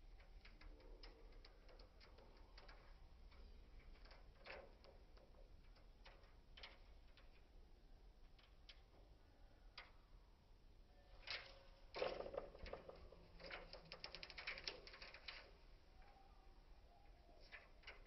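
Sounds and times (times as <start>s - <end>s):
parrot claws clicking on cage mesh: 11.2s - 15.6s.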